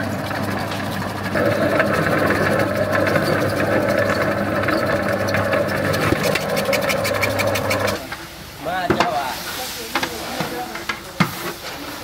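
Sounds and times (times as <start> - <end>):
tomato slicer motor hum: 0.0 - 8.1.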